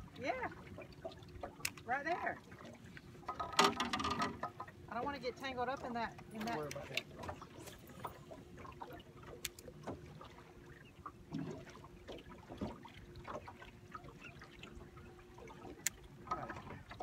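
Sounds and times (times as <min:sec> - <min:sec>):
faint boat motor hum: 0:00.0 - 0:17.0
fishing tackle clicks and knocks: 0:01.4 - 0:01.9, 0:03.2 - 0:04.7, 0:06.2 - 0:08.1.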